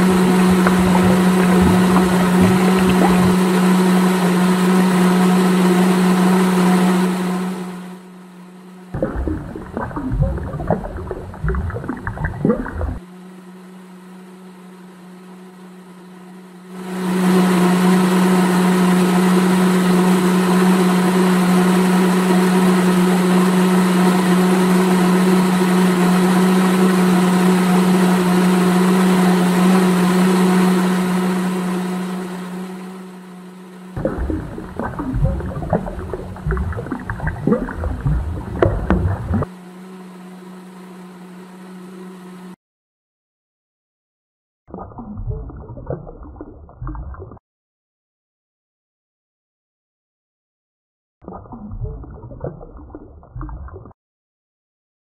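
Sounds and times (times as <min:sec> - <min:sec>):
small electric motor humming: 0:00.0 - 0:42.6.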